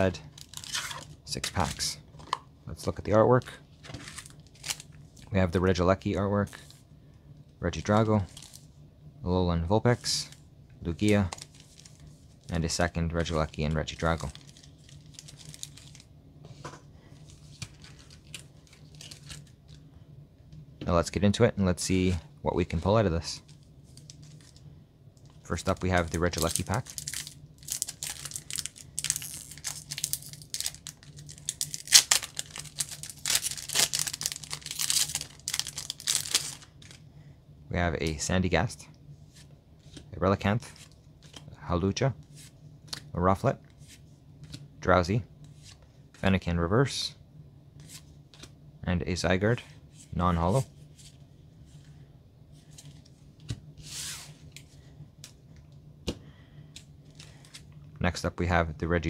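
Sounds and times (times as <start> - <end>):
low steady hum: 0.0 - 59.0
foil wrapper tearing and crinkling: 0.3 - 1.1, 14.0 - 16.1, 25.9 - 37.0
cards rustling: 17.2 - 19.6, 25.5 - 37.0.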